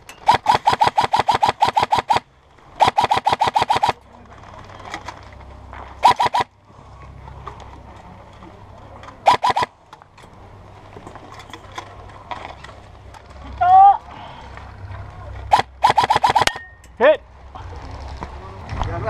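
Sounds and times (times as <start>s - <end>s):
airsoft rifle firing bursts: 0.3s - 4.0s, 6.0s - 6.5s, 9.2s - 9.7s, 15.5s - 16.6s.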